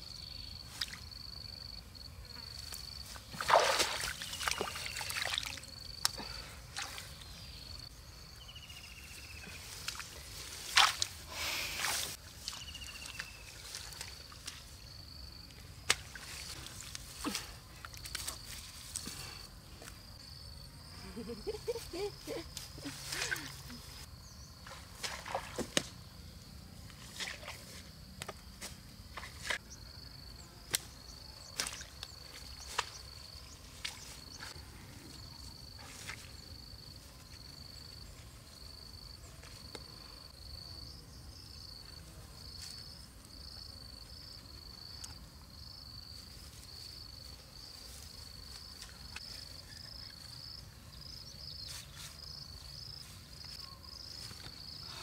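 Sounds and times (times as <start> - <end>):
insect chirping: 0.0 - 55.0
grass stalks clicking and snapping: 15.9 - 19.1.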